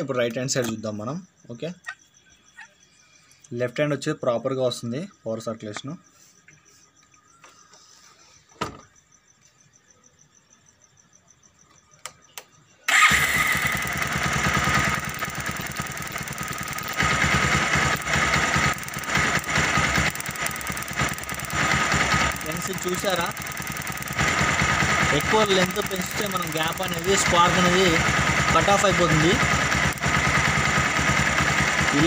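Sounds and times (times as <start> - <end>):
motorcycle engine running: 12.9 - 32.0.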